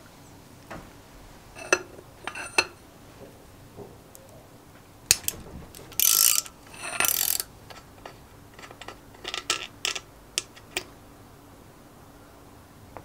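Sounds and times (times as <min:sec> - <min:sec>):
ratcheting wrench clicking: 0:05.1 - 0:10.9.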